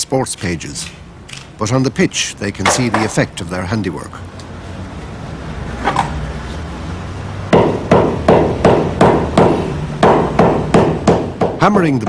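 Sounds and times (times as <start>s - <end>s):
hammer striking leather ball: 7.5s - 11.6s.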